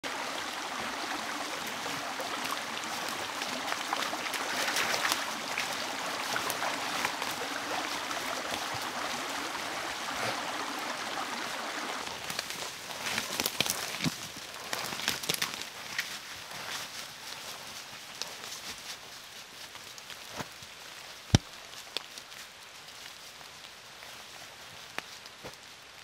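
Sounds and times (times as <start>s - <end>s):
rushing water hiss: 0.0s - 26.0s
water drips ticking: 0.1s - 9.6s.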